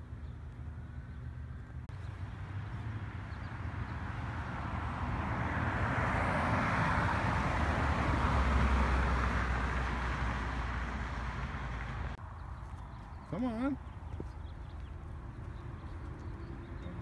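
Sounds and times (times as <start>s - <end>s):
car driving past: 1.9s - 12.2s.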